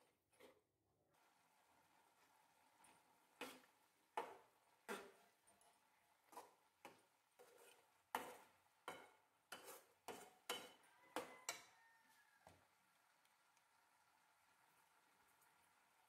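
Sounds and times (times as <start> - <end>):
metal spatula scraping a pan: 0.3 - 0.6, 2.8 - 11.8.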